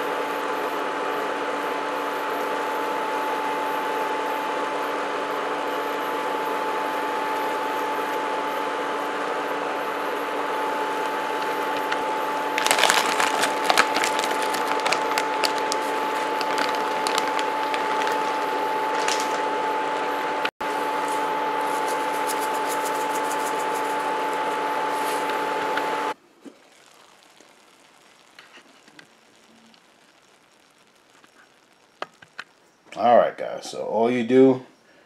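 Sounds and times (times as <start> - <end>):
air fryer fan whir: 0.0 - 27.3.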